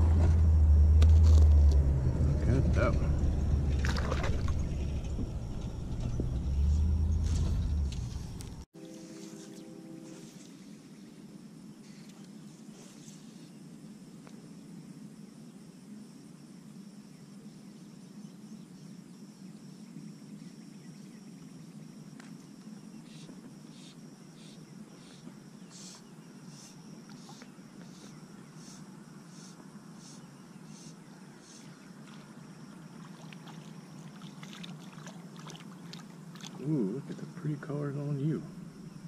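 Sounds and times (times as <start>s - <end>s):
water lapping around float tube: 3.7s - 4.8s, 31.6s - 37.4s.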